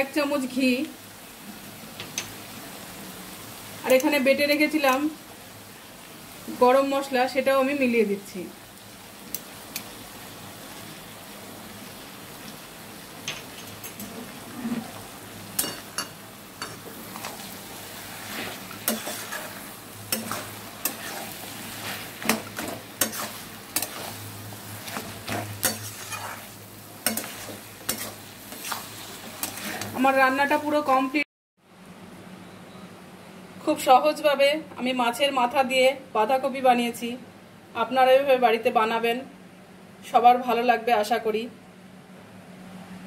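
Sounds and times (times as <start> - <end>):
food sizzling in a wok: 0.0 - 31.3
metal spatula scraping a wok: 16.6 - 30.0.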